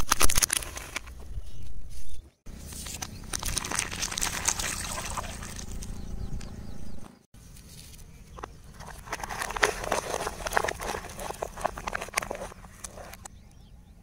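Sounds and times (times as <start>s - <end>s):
plastic cups crushed crackling: 0.0s - 1.1s, 2.7s - 5.8s, 8.4s - 13.3s
paper cups crumpling: 2.5s - 5.9s, 8.4s - 13.3s
liquid splashing on asphalt: 3.2s - 5.8s.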